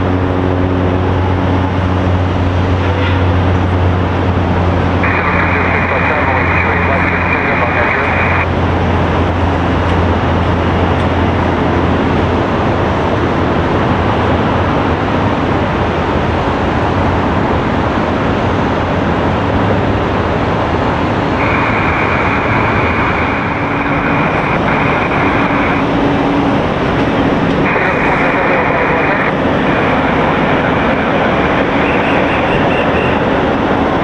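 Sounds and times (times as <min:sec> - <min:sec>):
jet aircraft engine: 0:00.0 - 0:34.0
radio hiss: 0:05.0 - 0:08.5, 0:21.4 - 0:26.2, 0:26.8 - 0:33.1.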